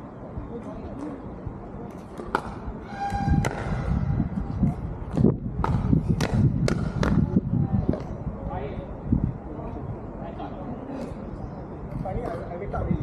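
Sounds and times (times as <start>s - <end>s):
ball bouncing on court: 5.1s - 7.2s.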